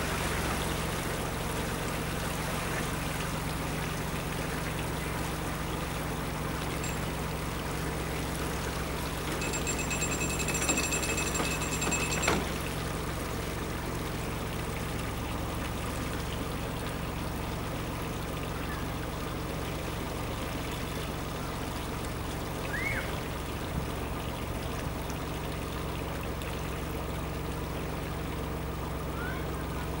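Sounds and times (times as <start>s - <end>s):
boat engine humming: 0.0s - 30.0s
water trickling and splashing: 0.0s - 30.0s.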